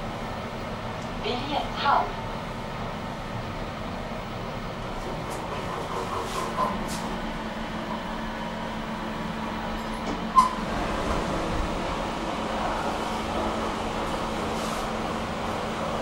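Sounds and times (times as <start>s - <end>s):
elevator car mechanical hum: 0.0s - 16.0s
elevator doors sliding open: 4.9s - 8.2s, 9.1s - 16.0s.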